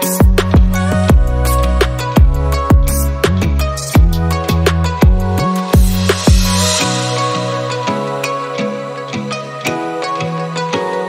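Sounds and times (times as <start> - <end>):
bass line: 0.0 - 7.8
electronic beat: 0.0 - 8.4
ticking hi-hats: 0.0 - 8.4
deep kick drums: 0.2 - 1.4, 2.2 - 3.4, 4.0 - 4.3, 5.0 - 6.7.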